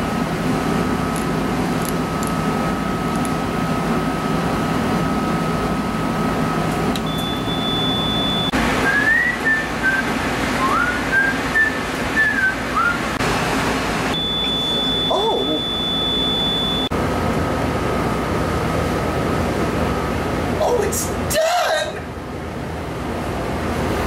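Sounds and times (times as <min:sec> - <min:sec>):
kitchen machinery hum: 0:00.0 - 0:24.0
man whistling: 0:07.1 - 0:13.0, 0:14.2 - 0:16.9
steady high tone: 0:14.1 - 0:16.9.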